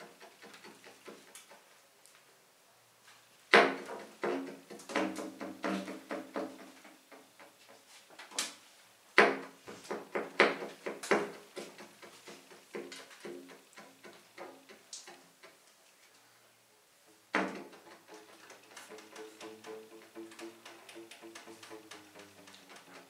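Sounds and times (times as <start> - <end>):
double basses plucked and knocked: 18.8 - 22.9.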